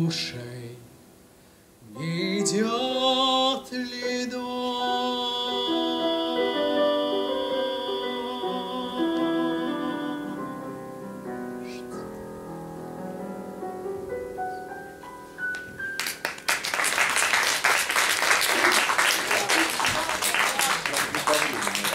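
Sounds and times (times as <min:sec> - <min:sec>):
man singing with vibrato: 0:00.0 - 0:01.0, 0:01.8 - 0:10.9
piano: 0:00.0 - 0:21.9
audience applause: 0:16.0 - 0:21.9.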